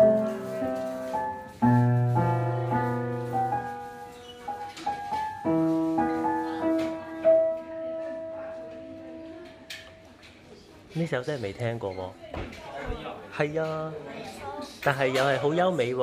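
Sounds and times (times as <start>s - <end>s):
upright piano playing slowly: 0.0s - 9.5s.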